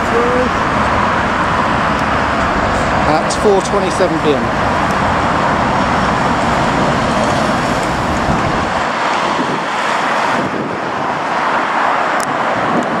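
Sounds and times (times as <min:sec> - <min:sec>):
airliner rushing overhead: 0:00.0 - 0:13.0
heavy road traffic passing: 0:00.0 - 0:13.0
wind on microphone: 0:04.5 - 0:13.0.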